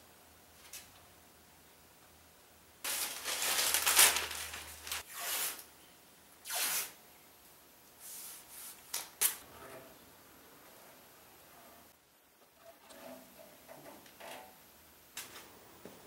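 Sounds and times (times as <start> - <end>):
masking tape peeling off metal: 2.9 - 5.7, 6.4 - 7.0.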